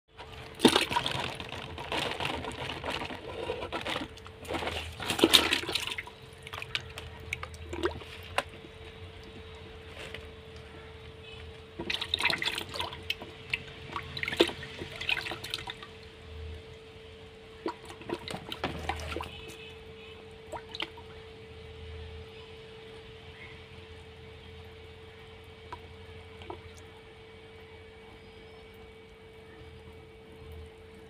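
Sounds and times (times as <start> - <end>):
fish splashing in bucket: 0.1 - 16.0, 17.5 - 21.2
water dripping: 5.0 - 21.8, 23.8 - 31.0.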